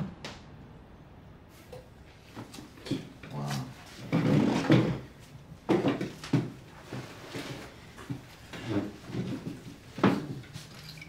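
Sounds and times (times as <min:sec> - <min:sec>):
wooden furniture scraping: 0:02.4 - 0:10.8
wooden furniture knocks: 0:04.1 - 0:06.6.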